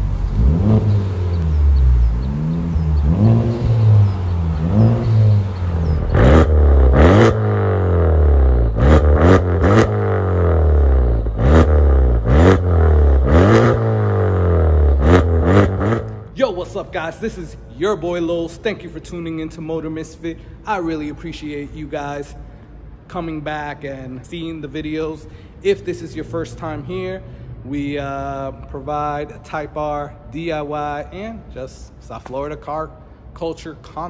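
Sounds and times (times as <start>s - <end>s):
car engine revving: 0.0s - 16.4s
exhaust cracks: 0.0s - 16.8s.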